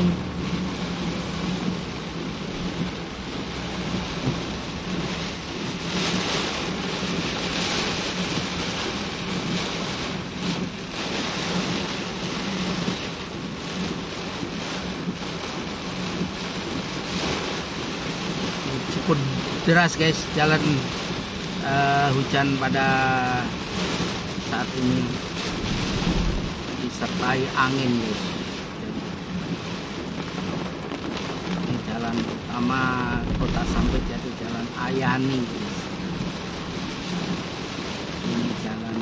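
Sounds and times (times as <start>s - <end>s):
vehicle engine hum: 0.0s - 19.6s, 23.4s - 27.2s
heavy rain pouring: 0.0s - 39.0s
wind: 0.0s - 39.0s.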